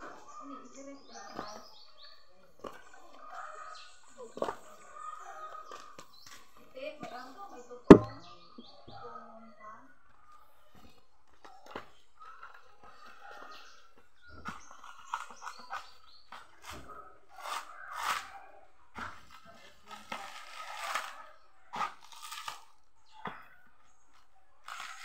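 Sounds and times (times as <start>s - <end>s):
coconut husk ripping and crunching: 14.5s - 18.5s, 19.1s - 22.9s, 24.6s - 25.0s.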